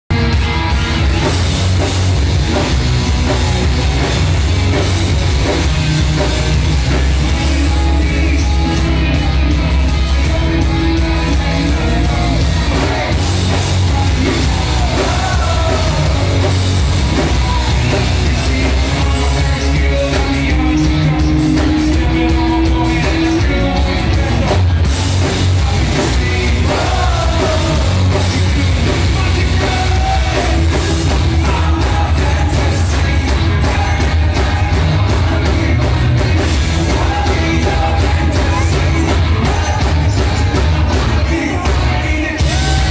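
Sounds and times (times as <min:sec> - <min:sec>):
live rock band: 0:00.1 - 0:42.9
person singing: 0:06.9 - 0:42.9.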